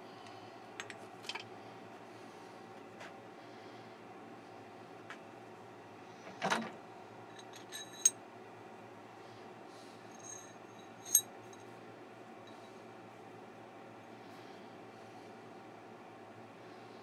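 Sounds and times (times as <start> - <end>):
metal parts clinking: 7.4 - 8.1, 10.2 - 11.2.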